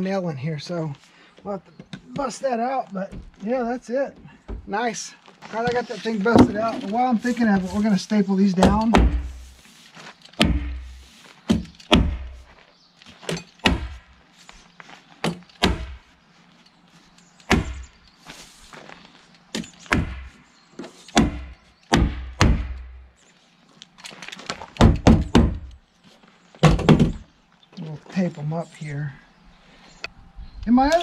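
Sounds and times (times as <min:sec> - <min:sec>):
hammer tacker stapling wood: 0:08.6 - 0:09.4, 0:10.4 - 0:12.4, 0:13.3 - 0:14.0, 0:15.2 - 0:16.0, 0:17.5 - 0:17.9, 0:19.5 - 0:20.4, 0:21.1 - 0:23.0, 0:24.8 - 0:25.8.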